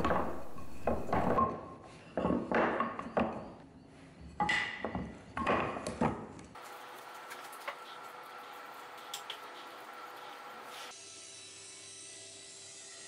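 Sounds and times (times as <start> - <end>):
wooden pieces knocking: 0.0 - 1.4.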